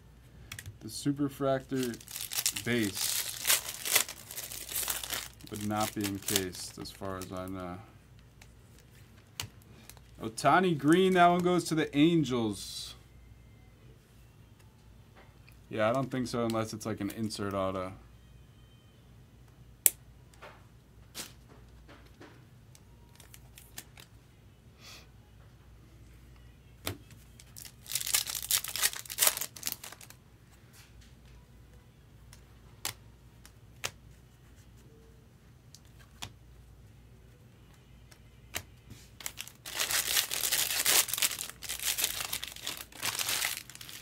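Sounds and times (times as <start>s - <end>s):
wrapper tearing and crinkling: 1.6s - 7.5s, 27.4s - 30.2s, 39.2s - 44.0s.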